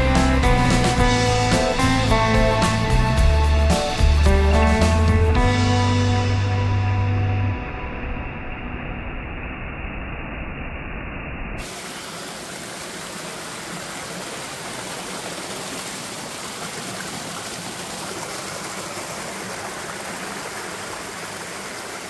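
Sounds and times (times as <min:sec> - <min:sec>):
waterfall rushing over rocks: 0:11.6 - 0:22.0.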